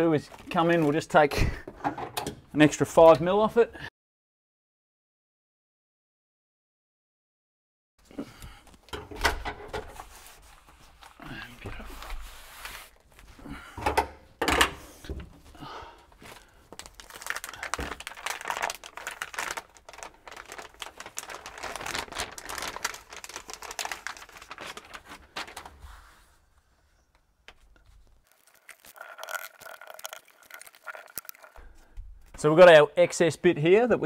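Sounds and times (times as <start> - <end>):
insulation sheet crinkling and tearing: 16.2 - 26.1, 27.8 - 31.6.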